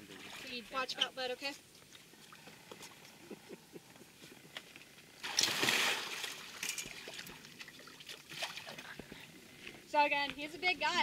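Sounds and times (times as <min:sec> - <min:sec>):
faint water sounds: 0:00.0 - 0:11.0
crocodile splashing in water: 0:05.2 - 0:08.8.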